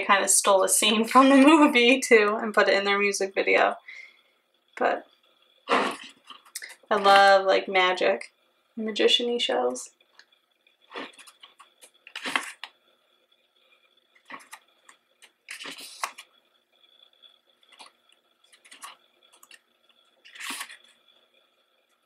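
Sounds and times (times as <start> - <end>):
book pages turning: 10.9 - 12.7, 14.2 - 16.3, 17.6 - 21.0.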